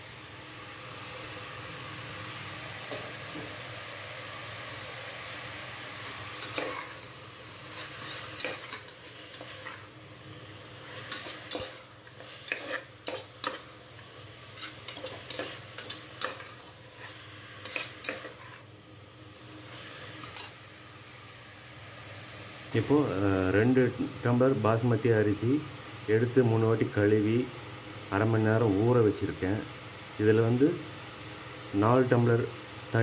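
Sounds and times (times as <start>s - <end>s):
vegetables sizzling: 0.0s - 33.0s
steel spoon scraping a pot: 7.7s - 9.9s, 10.8s - 13.6s, 14.5s - 18.6s.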